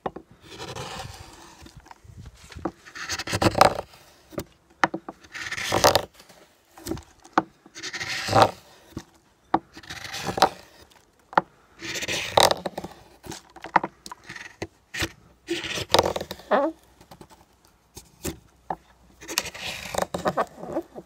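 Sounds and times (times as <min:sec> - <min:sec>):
gouge scraping wood: 0:00.4 - 0:01.8, 0:02.6 - 0:04.4, 0:05.1 - 0:07.0, 0:07.7 - 0:09.0, 0:09.7 - 0:11.0, 0:11.8 - 0:13.3, 0:14.2 - 0:16.8, 0:19.2 - 0:21.0.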